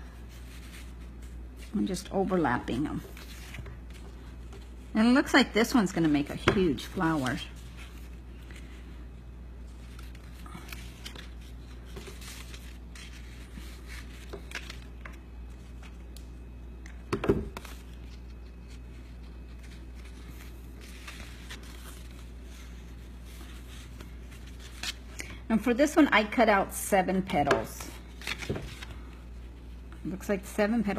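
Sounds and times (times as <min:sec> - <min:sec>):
paper rustling and scraping: 0:00.0 - 0:04.9, 0:06.0 - 0:09.0, 0:09.7 - 0:16.0, 0:17.5 - 0:25.1
steady low hum: 0:00.0 - 0:30.9.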